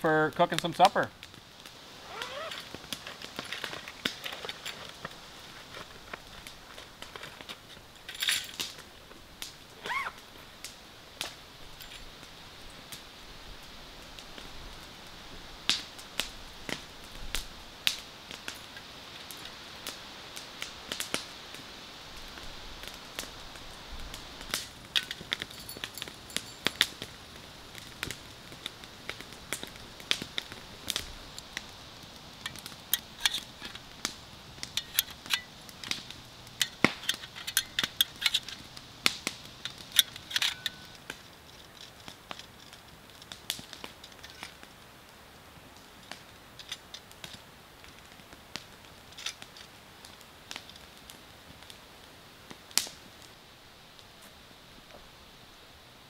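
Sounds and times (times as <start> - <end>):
campfire crackling and popping: 0.0 - 56.0
metal grill clinks: 40.0 - 40.9.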